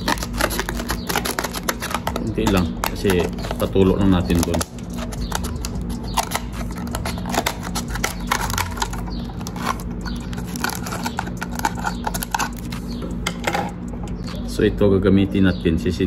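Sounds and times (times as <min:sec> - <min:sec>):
scissors snipping plastic: 0:00.0 - 0:12.7
plastic crinkling and crackling: 0:00.0 - 0:13.0
steady low hum: 0:00.0 - 0:16.0.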